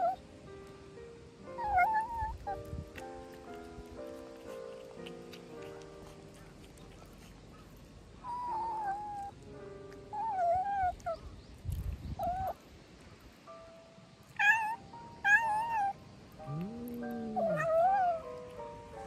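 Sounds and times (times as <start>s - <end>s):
background music: 0.0s - 7.4s, 14.7s - 19.0s
cat meowing: 14.4s - 18.3s.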